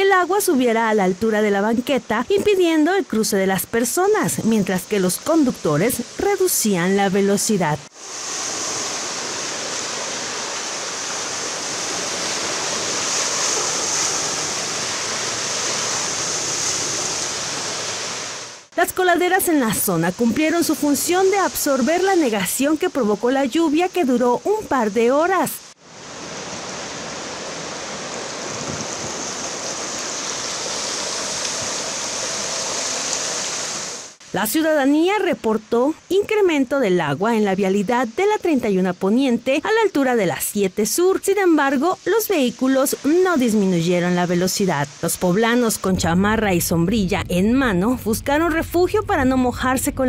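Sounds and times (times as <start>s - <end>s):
floodwater rushing: 4.2s - 18.7s, 19.4s - 34.3s
car tyres splashing through water: 26.1s - 34.2s.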